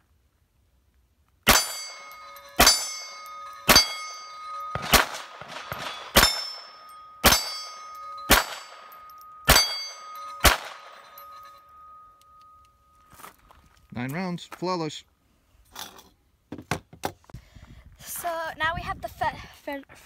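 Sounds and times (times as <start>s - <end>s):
pistol shots: 1.5s - 11.1s
steel plate target ringing: 1.5s - 13.1s.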